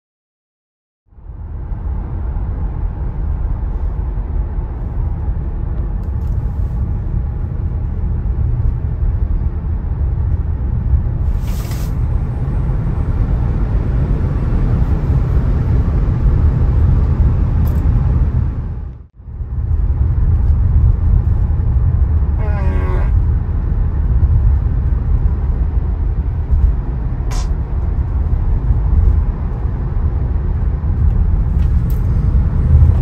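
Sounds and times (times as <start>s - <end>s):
road and tyre noise in car: 1.1s - 33.0s
brief high hiss: 11.3s - 12.0s.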